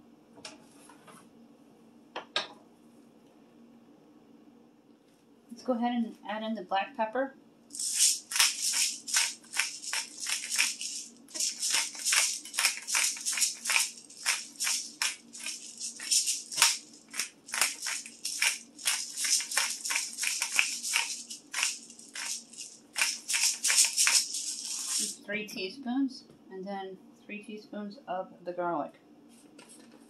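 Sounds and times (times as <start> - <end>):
pepper rattling in shaker: 7.7 - 25.3.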